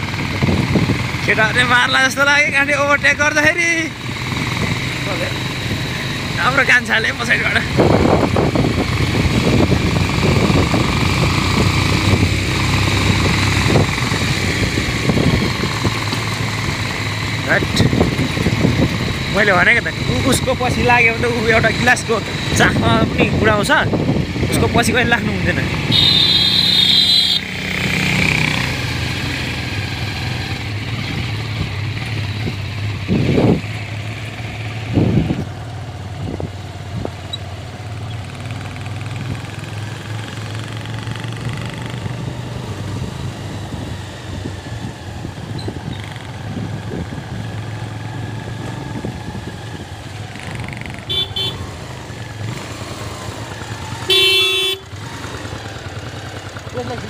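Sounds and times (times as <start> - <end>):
motorcycle engine running: 0.0 - 57.0
vehicle horn: 25.8 - 27.5, 51.1 - 51.7, 54.0 - 55.0.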